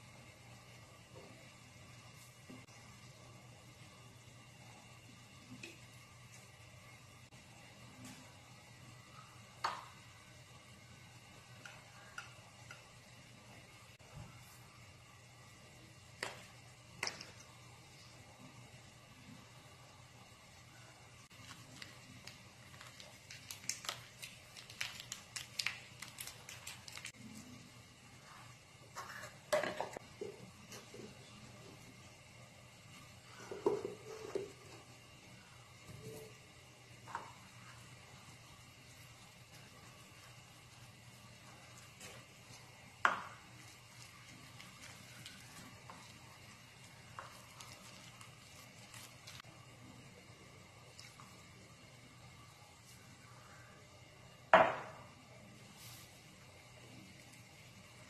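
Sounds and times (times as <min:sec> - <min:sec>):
faint steady hum: 0:00.0 - 0:58.0
plastic sachet crinkling: 0:21.4 - 0:27.1
spoon stirring paste in bowl: 0:38.9 - 0:49.5.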